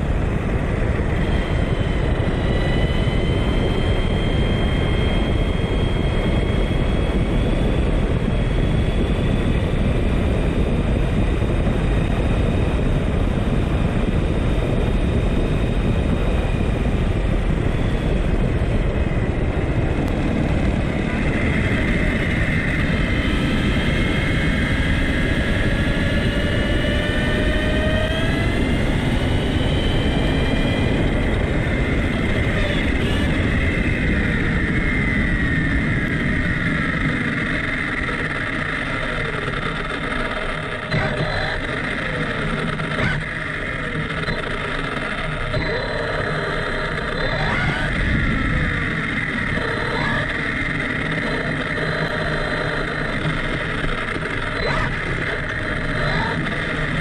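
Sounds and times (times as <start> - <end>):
electric motor whining: 19.1 - 57.0
tyre and road noise: 30.2 - 57.0.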